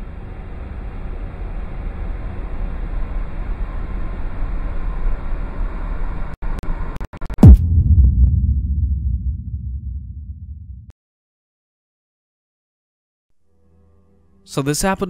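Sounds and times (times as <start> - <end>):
loud boom sweeping down: 7.4 - 10.9
low rumble: 7.4 - 10.9.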